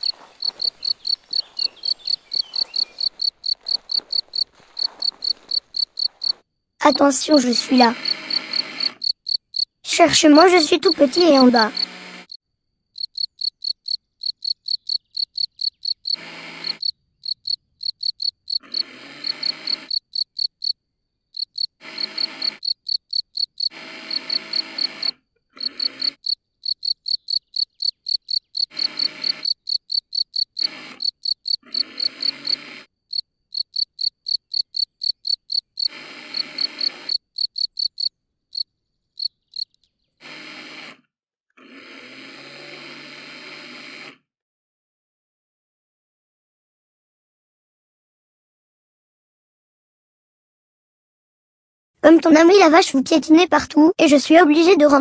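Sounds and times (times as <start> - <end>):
short bursts of noise: 0.0 - 9.6
cricket chirping: 0.0 - 9.8, 12.9 - 39.8.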